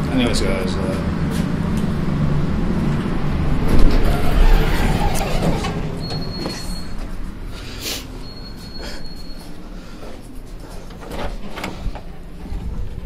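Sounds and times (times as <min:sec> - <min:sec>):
elevator rumbling and rattling: 0:00.0 - 0:07.5, 0:10.5 - 0:13.0
elevator doors opening: 0:02.9 - 0:07.5, 0:10.6 - 0:13.0.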